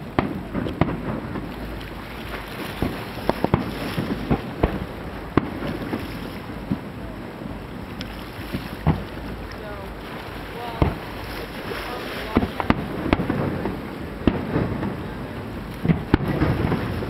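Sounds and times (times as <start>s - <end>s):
fireworks bangs: 0.0s - 17.0s
wind on microphone: 0.0s - 17.0s.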